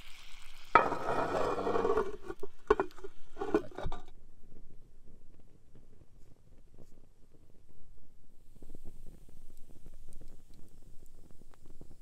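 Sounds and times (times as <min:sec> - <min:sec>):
metal lid scraping: 0:00.7 - 0:04.1
metal lid clanking: 0:00.8 - 0:04.1.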